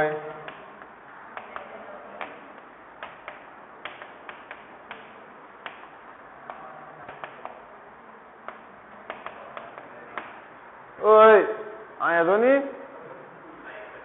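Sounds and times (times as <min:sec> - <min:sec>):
chalk tapping on chalkboard: 0:03.0 - 0:07.6, 0:08.4 - 0:10.4.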